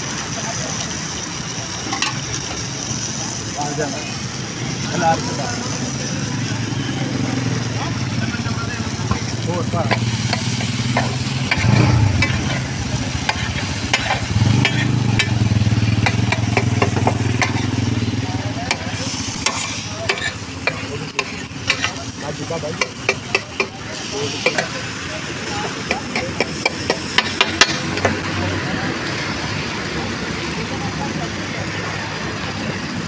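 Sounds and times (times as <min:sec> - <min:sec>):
food sizzling on griddle: 0:00.0 - 0:33.0
metal spatula scraping griddle: 0:09.9 - 0:17.8, 0:18.7 - 0:22.0.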